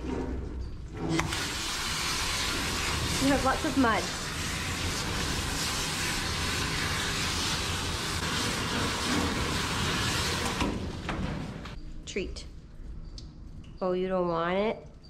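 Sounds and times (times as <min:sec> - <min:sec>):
water splashing in a metal tub: 0:01.1 - 0:11.1
water spraying from a hose: 0:01.2 - 0:11.0.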